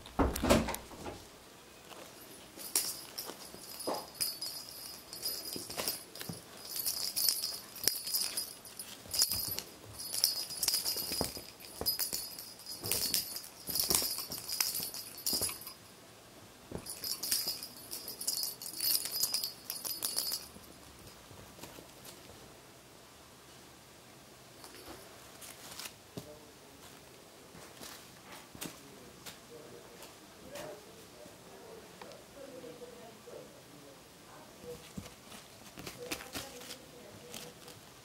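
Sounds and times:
light rustling: 0.1s - 15.9s, 16.7s - 22.4s
small jingle bell ringing: 1.9s - 15.9s, 16.7s - 21.2s, 24.6s - 25.1s.

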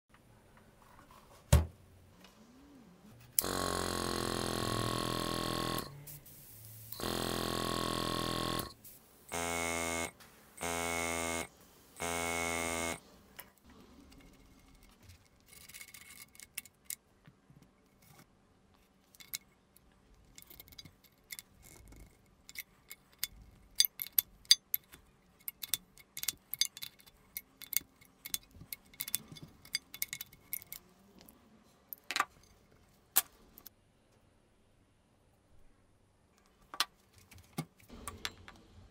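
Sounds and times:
small air compressor running: 3.4s - 6.2s, 6.8s - 13.1s
wrench clicking on metal fittings: 20.4s - 30.8s.

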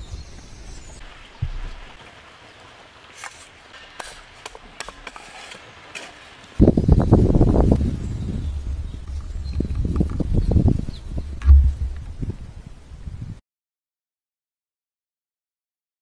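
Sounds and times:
loud crunching and scraping: 3.1s - 12.2s
soft thump: 11.4s - 12.1s.

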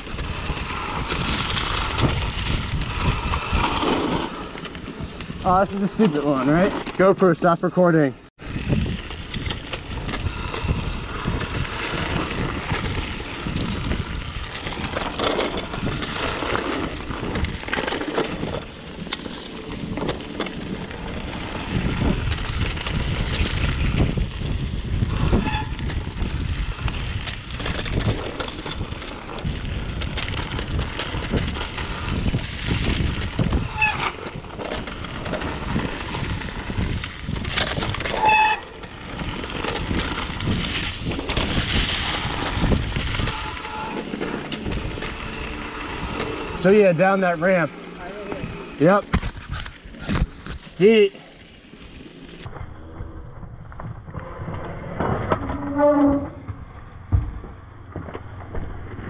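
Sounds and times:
wind on microphone: 0.0s - 6.7s, 8.4s - 46.9s
bike tyres rumbling on rough ground: 0.0s - 59.0s.

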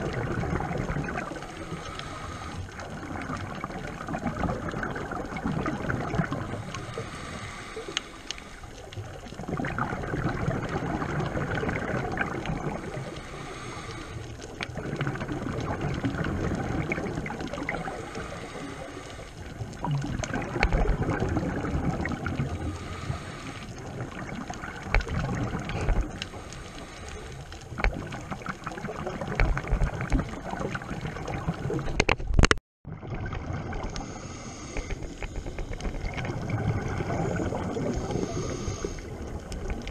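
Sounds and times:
exhaled bubbles gurgling underwater: 0.0s - 39.9s
small clicks and knocks: 31.9s - 32.6s.

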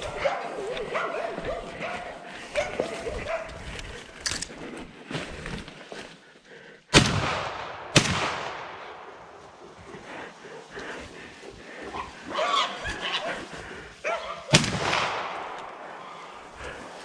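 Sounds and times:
dog barking: 0.0s - 3.6s, 12.0s - 13.4s, 14.0s - 14.5s
shotgun shots: 6.9s - 9.4s, 14.5s - 15.8s.

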